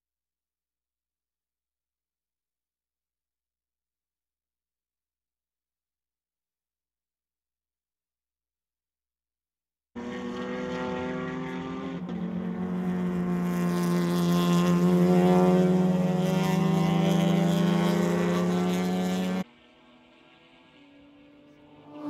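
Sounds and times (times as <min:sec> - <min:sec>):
race car engines running hard: 0:10.0 - 0:22.0.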